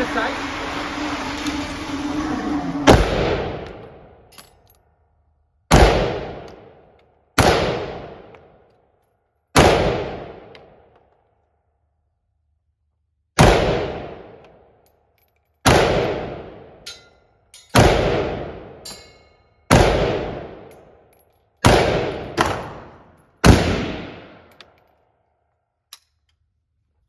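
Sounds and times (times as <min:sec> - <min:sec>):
rifle shots echoing: 0:05.7 - 0:06.8, 0:07.4 - 0:08.3, 0:09.6 - 0:10.8, 0:13.4 - 0:14.4, 0:15.6 - 0:16.8, 0:17.8 - 0:18.8, 0:19.7 - 0:20.7, 0:21.6 - 0:24.5
light metallic clink: 0:16.8 - 0:17.8, 0:18.8 - 0:19.6.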